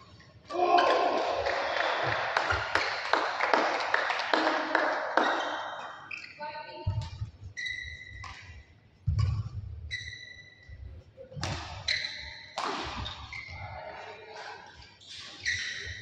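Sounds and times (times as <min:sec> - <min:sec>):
shoes squeaking on court floor: 0:05.2 - 0:16.0
racket hitting shuttlecock: 0:11.4 - 0:13.3.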